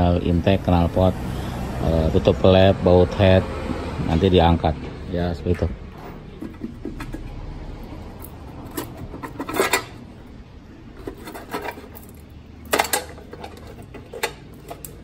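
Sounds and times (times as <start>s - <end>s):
hand tools clinking on metal: 8.1s - 10.1s, 11.0s - 15.0s.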